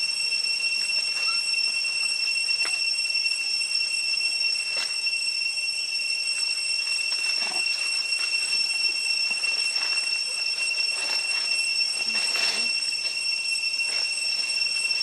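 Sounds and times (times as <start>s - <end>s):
forest insects droning: 0.0s - 15.0s
rustles in dry leaves: 6.9s - 13.2s, 13.8s - 15.0s.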